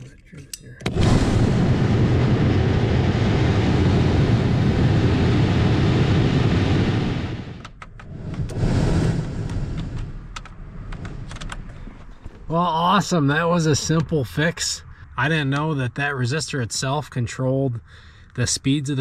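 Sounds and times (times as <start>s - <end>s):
blower fan rushing air: 0.9s - 13.8s.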